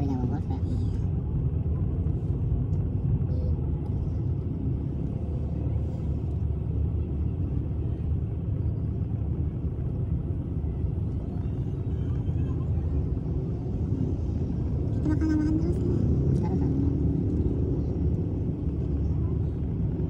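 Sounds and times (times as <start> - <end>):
car rumble inside cabin: 0.0 - 20.0.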